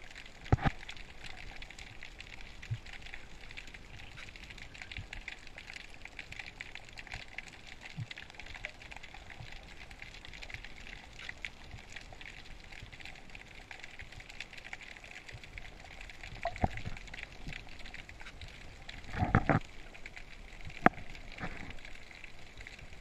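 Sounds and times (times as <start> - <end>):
dense underwater crackle of clicks: 0.0 - 23.0.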